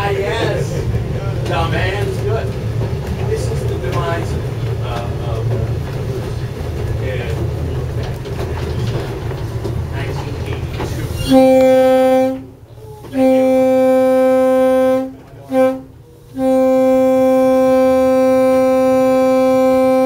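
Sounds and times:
low rumble of locomotive: 0.0 - 20.0
locomotive horn blasts: 11.2 - 20.0.

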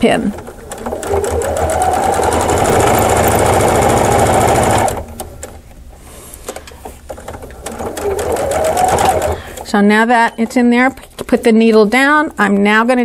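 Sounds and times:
sewing machine stitching: 0.0 - 5.5, 7.1 - 9.8.

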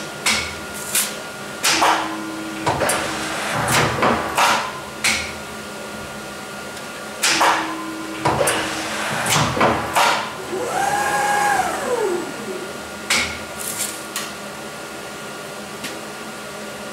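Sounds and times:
motor hum: 10.3 - 13.9
motor whine falling in pitch: 10.4 - 13.3.

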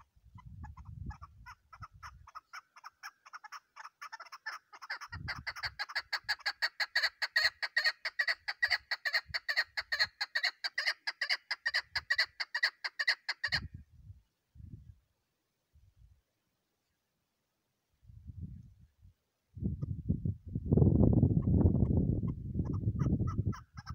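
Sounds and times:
partridge chuck calls: 0.0 - 13.7, 21.8 - 23.9.

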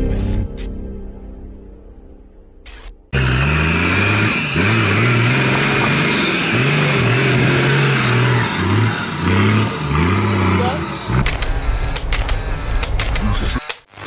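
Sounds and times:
diesel engine revving hard: 3.2 - 13.2.

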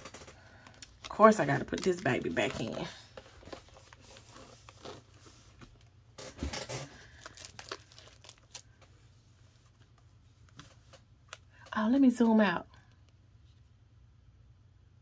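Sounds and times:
paper rustling: 0.0 - 9.0.

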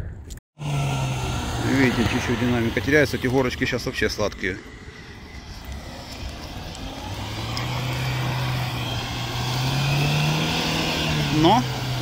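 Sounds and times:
car engine pulling under load: 0.6 - 12.0.

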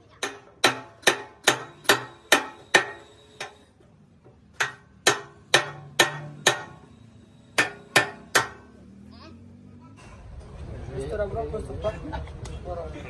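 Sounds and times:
hammer ringing on steel: 0.2 - 3.7, 4.5 - 8.8.

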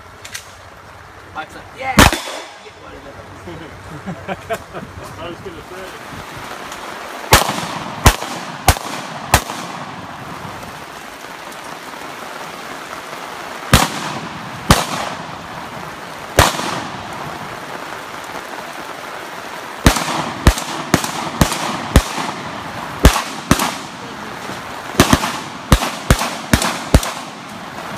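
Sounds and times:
rain hiss: 0.0 - 27.9
gunshots with echo: 2.0 - 2.7, 7.3 - 10.0, 13.7 - 15.3, 16.4 - 17.0, 19.8 - 24.0, 25.0 - 27.5.

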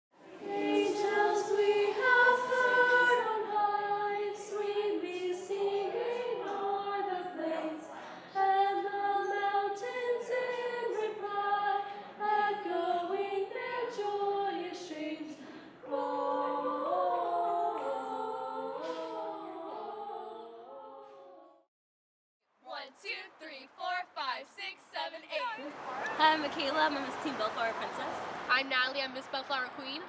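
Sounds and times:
girls singing a cappella: 0.2 - 21.7.

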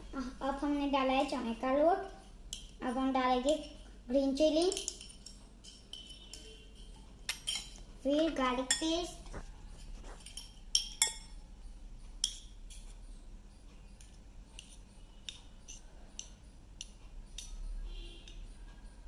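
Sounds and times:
steel spoons clinking and scraping: 4.6 - 11.4, 12.2 - 13.1, 14.0 - 18.6.

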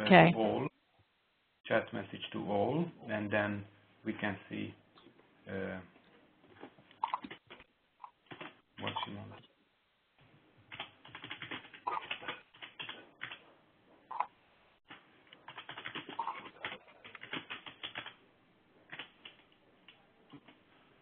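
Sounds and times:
keyboard typing: 7.0 - 9.2, 10.7 - 13.4, 14.9 - 18.2, 18.9 - 20.6.

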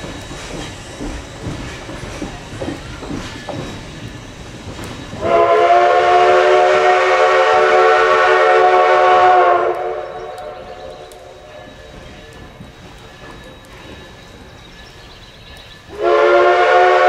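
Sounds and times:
train wheels clicking over rail joints: 0.0 - 17.0
steam whistle blast: 5.2 - 11.4, 15.9 - 17.0.

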